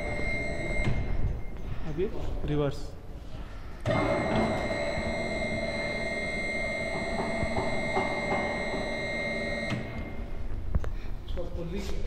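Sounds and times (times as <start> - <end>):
electric motor hum and whine: 0.0 - 1.4, 3.8 - 10.4.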